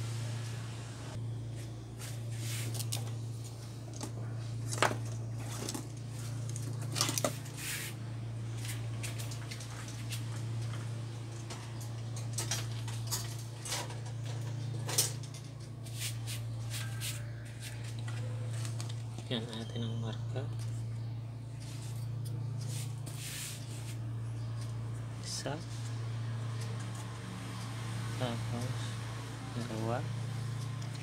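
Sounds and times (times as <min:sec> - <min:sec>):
steady low hum: 0:00.0 - 0:31.0.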